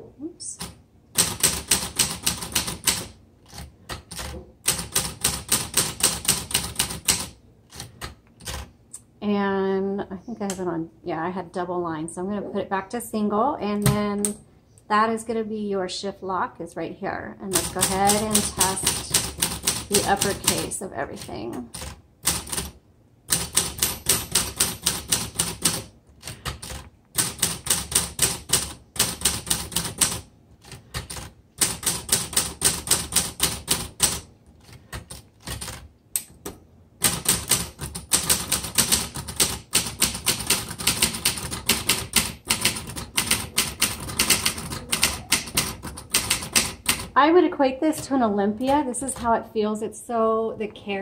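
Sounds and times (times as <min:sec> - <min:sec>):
typewriter keystrokes: 0:00.6 - 0:08.7, 0:17.5 - 0:36.4, 0:37.0 - 0:47.2.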